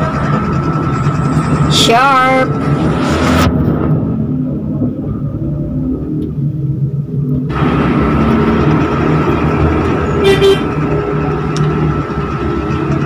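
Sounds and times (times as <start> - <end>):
vehicle engine running: 0.0 - 13.0
car horn toot: 10.2 - 10.8.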